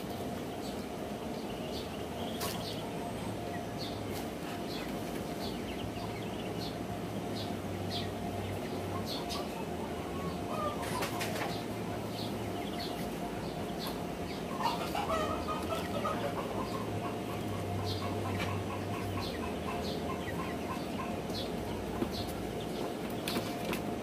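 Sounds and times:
duck and hens clucking: 0.0 - 24.0
ducklings peeping: 0.0 - 24.0
wings fluttering: 10.7 - 11.7.

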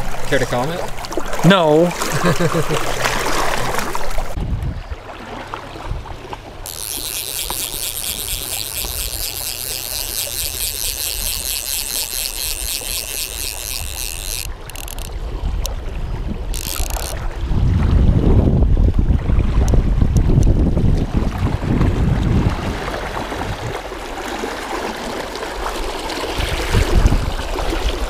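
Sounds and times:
fishing reel ratchet clicking: 6.6 - 15.8, 16.5 - 17.2.

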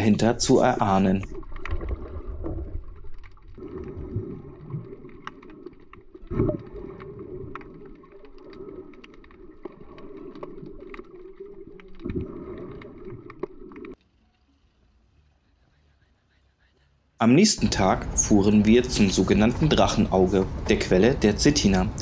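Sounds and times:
muffled underwater wash: 0.0 - 14.0
underwater clicks and crackles: 0.0 - 14.5.

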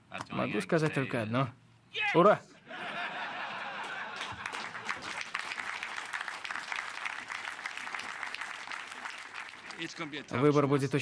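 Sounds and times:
crowd applauding: 3.8 - 10.4.

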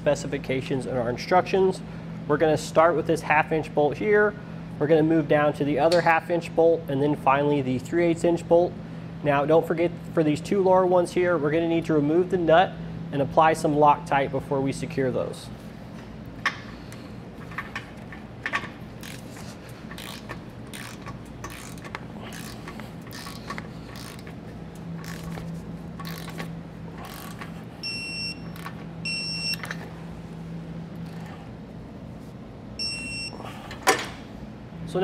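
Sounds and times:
torque wrench ratcheting: 18.0 - 27.6.

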